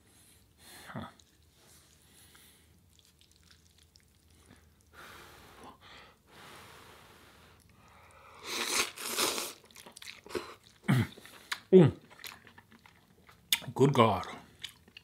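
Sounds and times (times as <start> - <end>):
chewing: 1.0 - 5.0, 7.6 - 15.0
person blowing on food: 8.4 - 9.6
person slurping noodles: 8.4 - 11.4.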